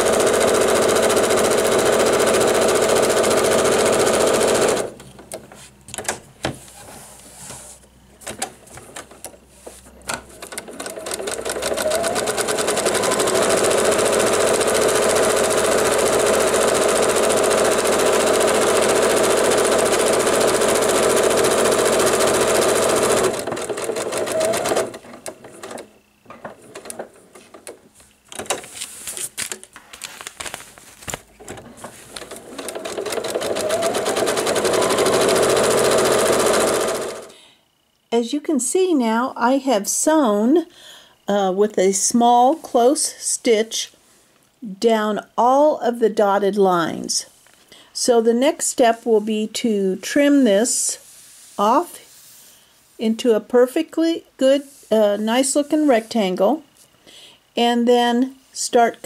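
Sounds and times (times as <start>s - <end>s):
sewing machine stitching: 0.0s - 5.0s, 10.2s - 25.9s, 31.4s - 37.3s
small handling noises: 26.3s - 32.4s.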